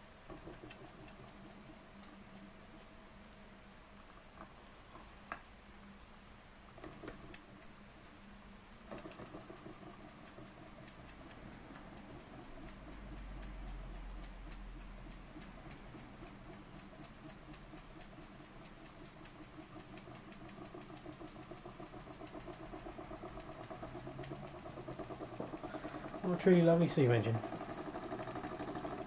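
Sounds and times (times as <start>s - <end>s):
model steam engine chuffing: 17.3s - 29.0s.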